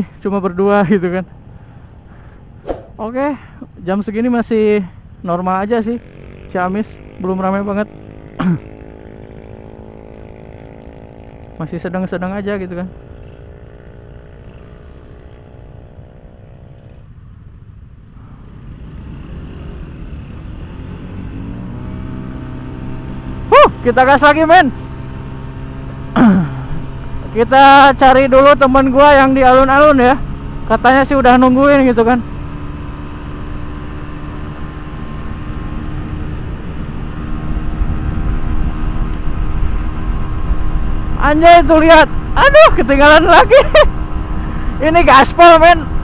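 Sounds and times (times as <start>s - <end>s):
wind rushing over microphone: 2.4s - 3.1s, 34.1s - 43.1s
scooters accelerating away: 6.0s - 11.7s, 12.9s - 17.0s, 18.0s - 46.0s.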